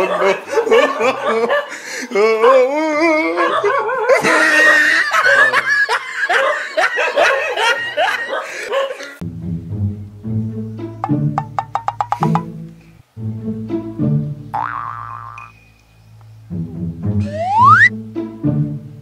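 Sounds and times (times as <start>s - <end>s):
dubbed-in laughter: 0.0s - 9.2s.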